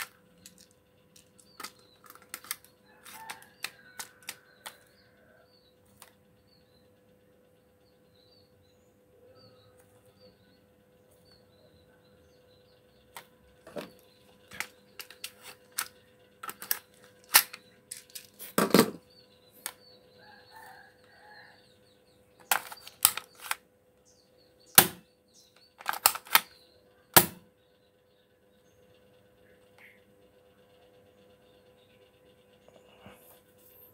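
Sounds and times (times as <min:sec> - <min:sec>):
airsoft gun clacks and snaps: 0:14.5 - 0:18.4, 0:22.4 - 0:23.6, 0:25.8 - 0:26.6.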